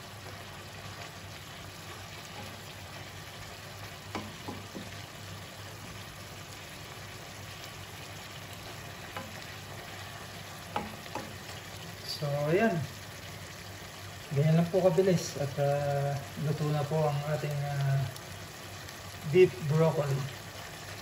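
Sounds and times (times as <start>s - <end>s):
food sizzling in a wok: 0.0s - 21.0s
spoon knocking against pan: 4.1s - 5.0s, 9.1s - 9.5s, 10.7s - 11.4s.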